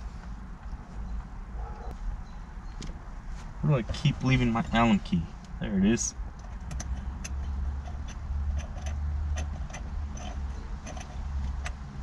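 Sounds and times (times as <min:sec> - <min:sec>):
small metallic clicks: 0:06.4 - 0:12.0.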